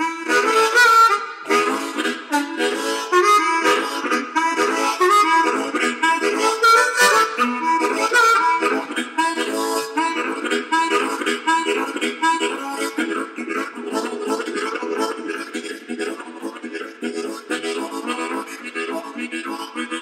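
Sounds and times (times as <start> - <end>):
blues harmonica playing: 0.0 - 20.0.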